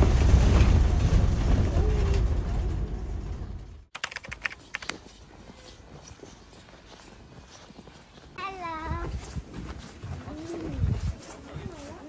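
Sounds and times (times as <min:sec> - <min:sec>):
low rumbling noise: 0:00.0 - 0:03.9
quick crisp clicks: 0:03.9 - 0:05.1.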